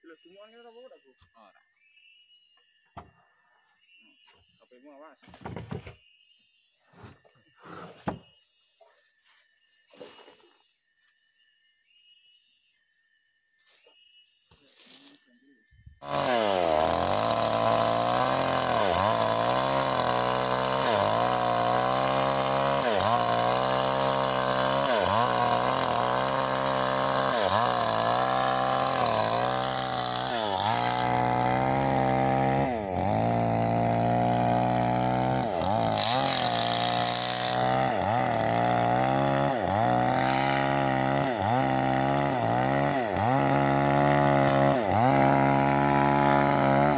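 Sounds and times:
chainsaw cutting through log: 7.0s - 8.2s, 16.0s - 46.9s.

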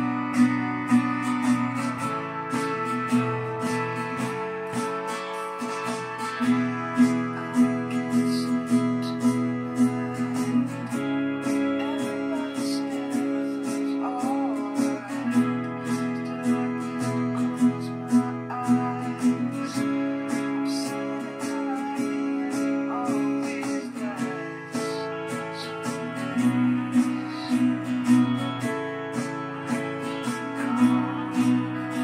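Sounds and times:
acoustic guitar strumming: 0.0s - 32.0s.

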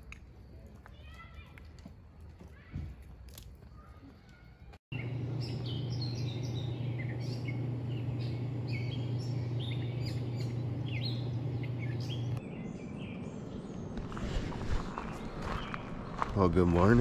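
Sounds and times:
songbirds chirping and trilling: 3.8s - 17.0s
steady low hum: 4.9s - 17.0s.

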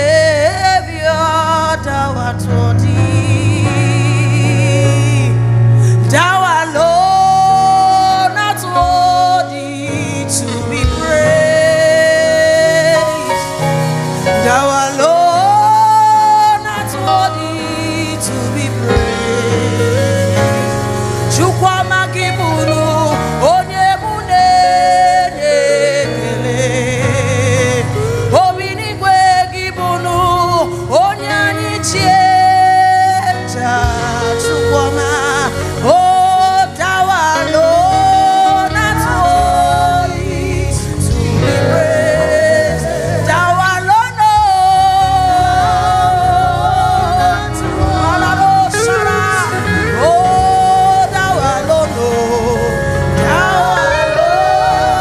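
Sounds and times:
instrumental backing: 0.0s - 55.0s
person singing with vibrato: 0.0s - 55.0s.

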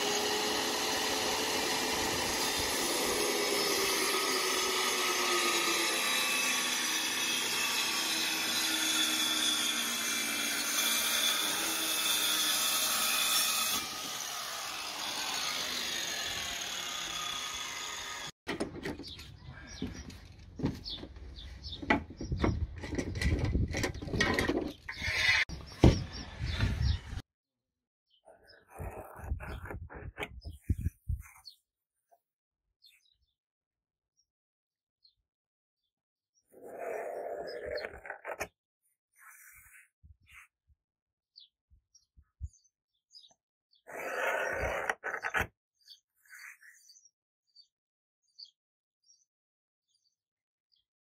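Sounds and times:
circular saw cutting plywood: 0.0s - 18.4s, 24.8s - 27.2s, 43.9s - 45.5s.

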